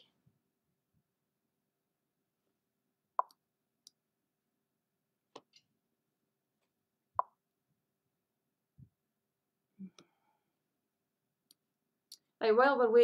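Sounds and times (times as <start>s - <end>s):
short pops and clicks: 3.2s - 3.4s, 7.2s - 7.4s.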